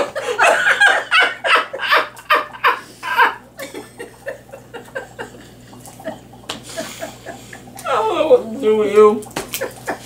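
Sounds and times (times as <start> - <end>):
person laughing: 0.0 - 8.2.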